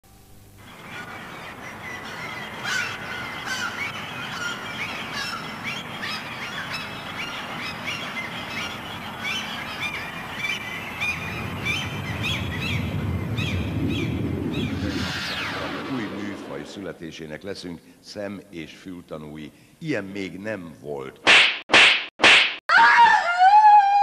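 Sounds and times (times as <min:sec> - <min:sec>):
steady background hiss: 0:00.1 - 0:21.2
small birds chirping: 0:00.6 - 0:16.6
low rumble: 0:10.6 - 0:17.2.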